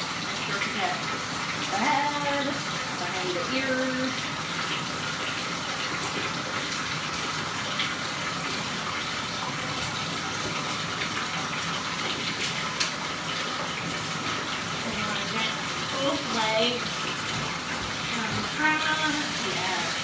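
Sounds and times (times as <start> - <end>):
water running into bathtub: 0.0 - 20.0.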